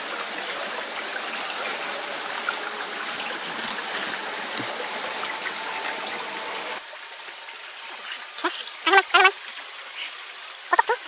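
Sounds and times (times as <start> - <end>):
stream trickling over stones: 0.0 - 11.0.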